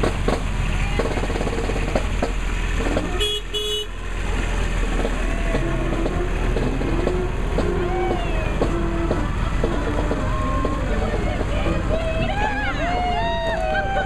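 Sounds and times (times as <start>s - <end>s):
golf cart horn beeping: 3.0s - 4.0s
carts rolling past: 3.9s - 14.0s.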